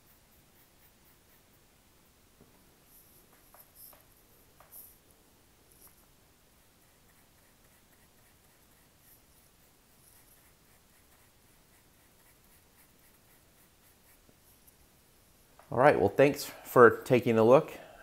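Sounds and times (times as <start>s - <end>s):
paintbrush brushing chalk on paper: 0.0s - 1.7s, 2.8s - 5.0s, 5.7s - 14.8s.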